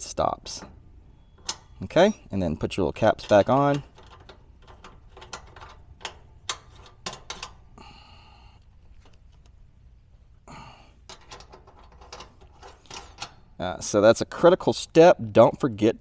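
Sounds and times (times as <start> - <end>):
metal caps clicking: 0.5 - 2.1, 2.7 - 7.8, 11.0 - 13.6.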